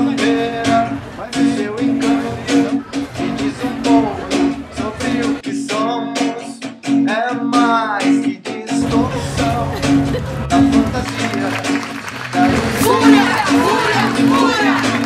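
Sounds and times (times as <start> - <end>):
guitar: 0.0 - 15.0
person singing: 0.0 - 15.0
steady beat: 8.0 - 15.0.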